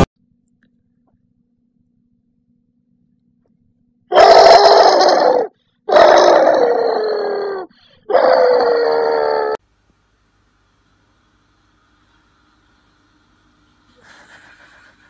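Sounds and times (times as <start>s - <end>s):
dog howling: 4.1s - 9.6s.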